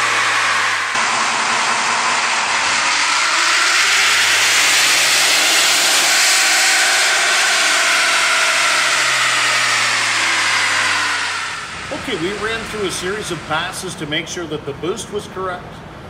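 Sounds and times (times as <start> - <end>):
engine running under load: 0.0 - 16.0.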